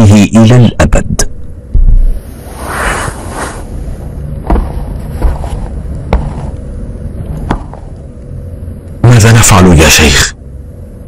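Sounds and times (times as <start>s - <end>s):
low rumble: 1.3s - 9.0s
sharp knocks on wood: 4.4s - 6.5s, 7.4s - 7.9s.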